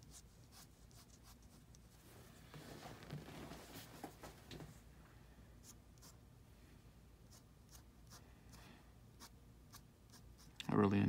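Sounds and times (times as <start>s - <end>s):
pen scratching on paper: 7.3s - 8.2s, 9.2s - 10.6s.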